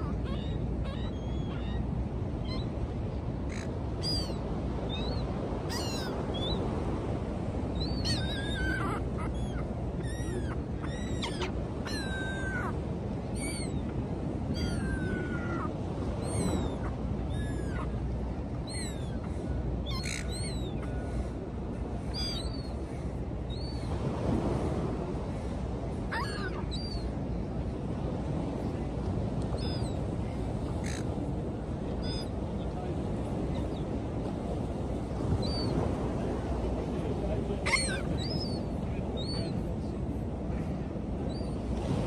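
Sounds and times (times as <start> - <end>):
surf: 0.0 - 42.0
wind: 0.0 - 42.0
gulls crying: 7.7 - 24.0, 37.2 - 39.9.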